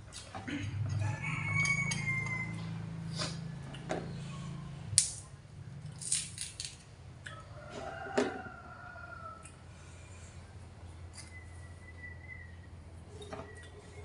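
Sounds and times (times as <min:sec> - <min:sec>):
banana snapping and peeling: 0:05.0 - 0:05.3, 0:05.9 - 0:06.9.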